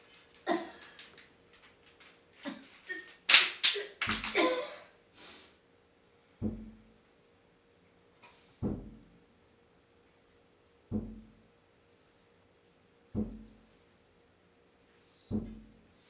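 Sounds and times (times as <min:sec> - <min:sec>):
heavy dull thumps: 0:06.4 - 0:06.8, 0:08.6 - 0:09.1, 0:10.9 - 0:11.4, 0:13.2 - 0:13.6, 0:15.3 - 0:15.8
scuffs and knocks in a stairwell: 0:06.4 - 0:06.8, 0:08.6 - 0:09.1, 0:10.9 - 0:11.4, 0:13.2 - 0:13.7, 0:15.2 - 0:15.8.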